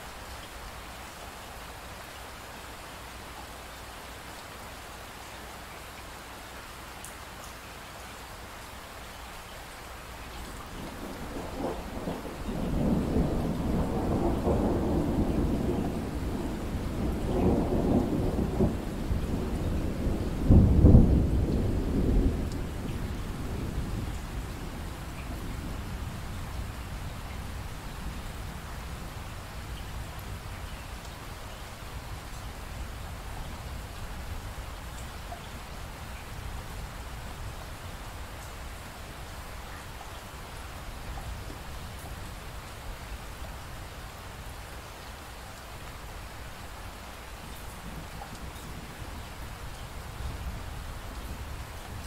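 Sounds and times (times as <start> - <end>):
steady rain hiss: 0.0 - 52.0
rolling thunder: 10.7 - 30.4.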